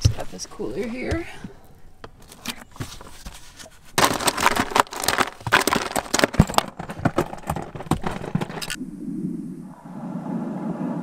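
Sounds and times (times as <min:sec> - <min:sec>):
crushed ice clattering: 0:03.9 - 0:08.8.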